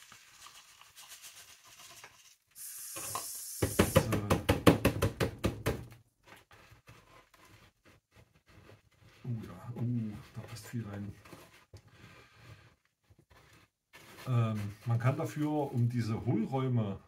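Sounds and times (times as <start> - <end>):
granules trickling into a pot: 0.0 - 3.5.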